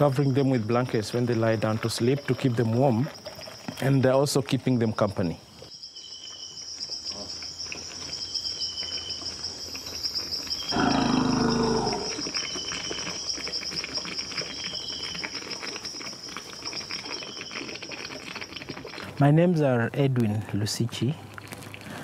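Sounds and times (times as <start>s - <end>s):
crickets trilling: 0.0s - 22.0s
elephant calf calling: 10.7s - 12.2s.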